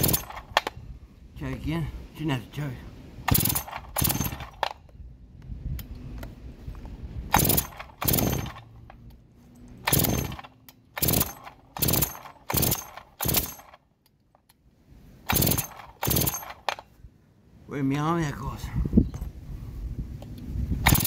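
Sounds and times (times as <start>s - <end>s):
chainsaw recoil rope cranking: 0.0s - 0.7s, 3.2s - 4.7s, 7.3s - 9.0s, 9.8s - 13.8s, 15.2s - 16.8s.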